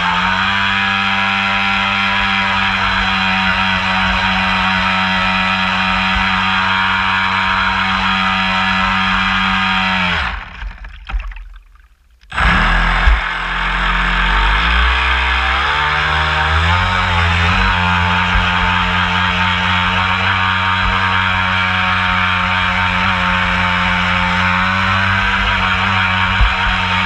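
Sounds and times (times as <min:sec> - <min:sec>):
model boat motor whining: 0:00.0 - 0:11.0, 0:12.2 - 0:27.0
rushing water: 0:10.5 - 0:12.4.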